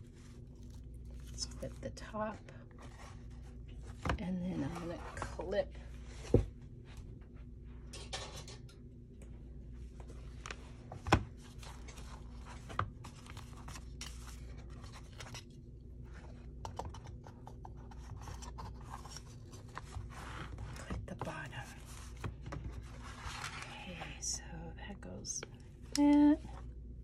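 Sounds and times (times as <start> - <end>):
paper rustling and scraping: 0.0 - 5.4, 10.3 - 16.4, 17.8 - 21.0, 21.7 - 24.1.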